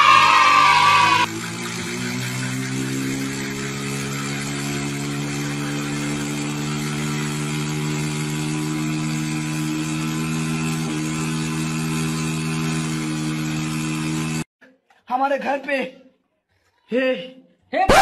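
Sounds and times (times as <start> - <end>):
motorboat engine running: 1.2 - 14.4.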